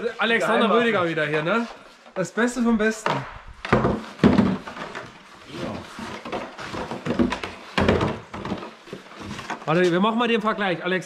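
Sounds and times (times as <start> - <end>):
plastic sled knocking and scraping: 2.9 - 10.6.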